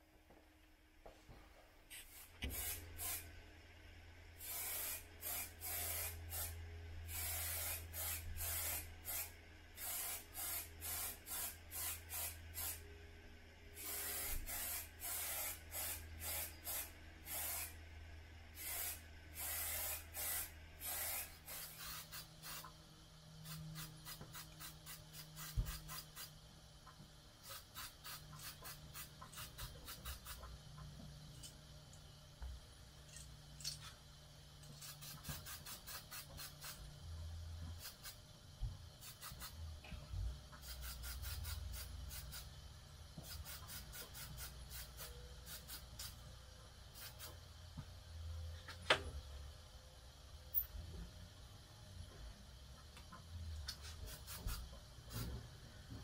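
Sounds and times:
spray paint hissing bursts: 0:01.9 - 0:03.3, 0:04.4 - 0:12.9, 0:13.8 - 0:17.8, 0:18.5 - 0:22.8, 0:23.4 - 0:26.5, 0:27.4 - 0:30.5, 0:34.6 - 0:36.9, 0:37.6 - 0:38.3, 0:38.9 - 0:39.7, 0:40.5 - 0:46.2, 0:46.8 - 0:47.5, 0:53.6 - 0:55.4.

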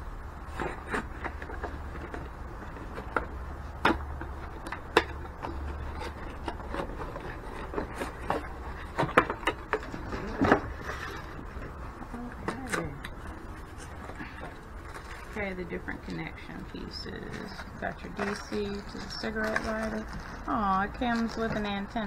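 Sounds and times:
rubbing and rustling: 0:00.4 - 0:16.2, 0:17.2 - 0:22.0.

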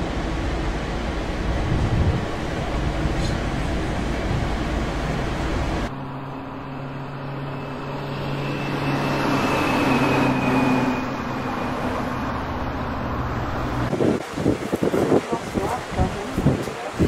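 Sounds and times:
wind on microphone: 0:01.4 - 0:04.8, 0:13.8 - 0:17.0.

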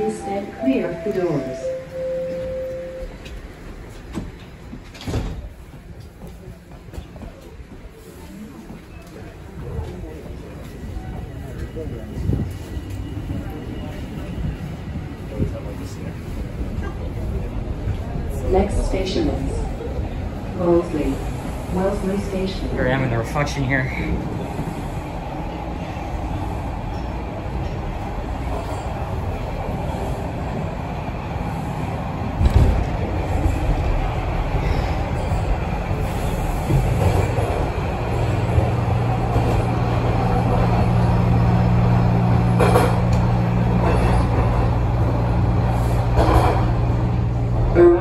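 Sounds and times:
wheels rumbling on rail: 0:00.0 - 0:48.0.

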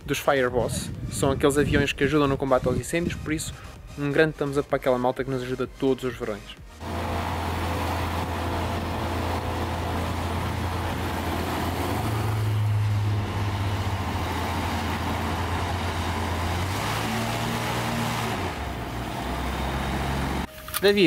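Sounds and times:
aircraft engines idling drone: 0:06.8 - 0:20.5.

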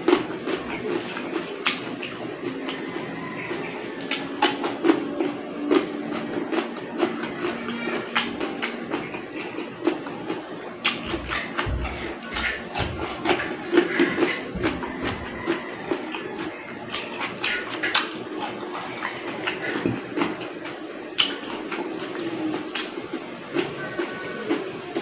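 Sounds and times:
chewing and lip smacking: 0:00.0 - 0:25.0.

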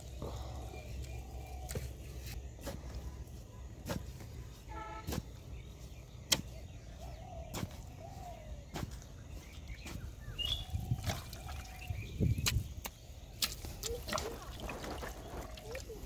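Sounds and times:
wet clods thudding: 0:07.4 - 0:11.6
hand squelching in muddy water: 0:10.8 - 0:12.0, 0:13.4 - 0:16.0
metal blade chopping wet clay: 0:12.3 - 0:15.0.

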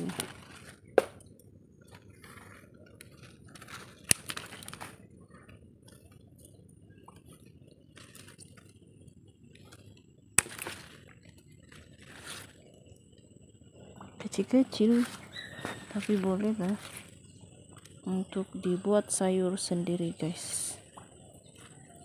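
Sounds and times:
soft handling noises: 0:01.8 - 0:13.4
scissors snipping stems: 0:10.4 - 0:10.8.

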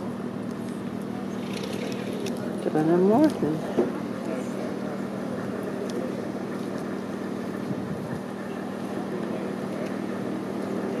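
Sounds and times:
boat engine droning: 0:00.0 - 0:11.0
water noise: 0:00.0 - 0:11.0
wind noise: 0:07.7 - 0:08.3.

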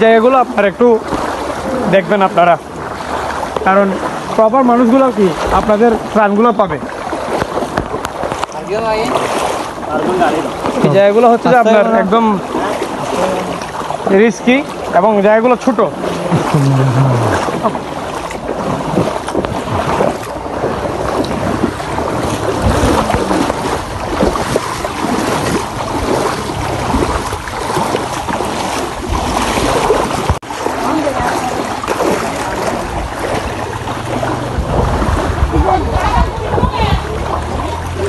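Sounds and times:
people wading through water: 0:00.0 - 0:38.0.

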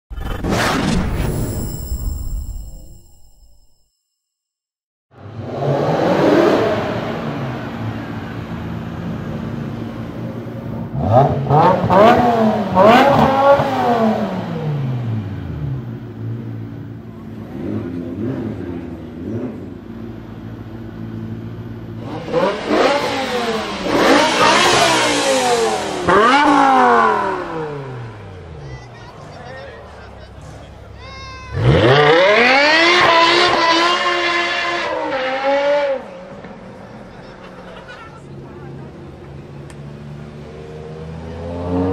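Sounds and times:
car engine idling and revving: 0:05.1 - 0:41.9.

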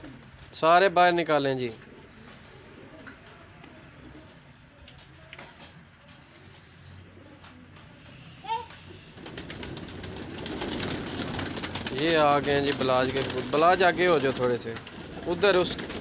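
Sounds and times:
pigeons cooing faintly: 0:00.0 - 0:16.0
pigeon wings flapping: 0:09.1 - 0:16.0.

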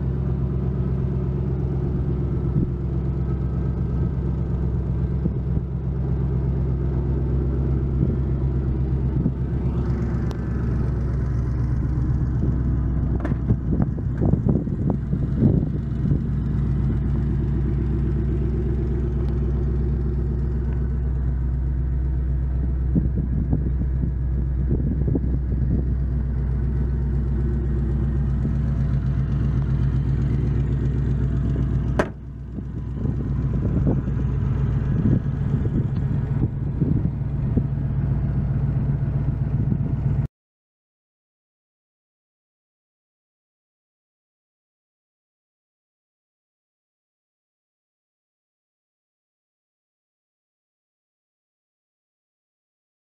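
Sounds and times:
truck engine idling: 0:00.0 - 0:40.3.

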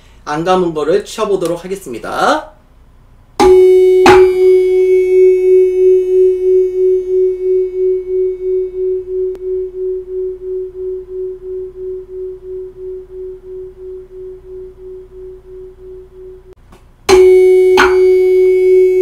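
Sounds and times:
rubber mallet striking forks: 0:03.4 - 0:07.2, 0:17.1 - 0:19.0
tuning forks ringing with beats: 0:03.4 - 0:19.0.

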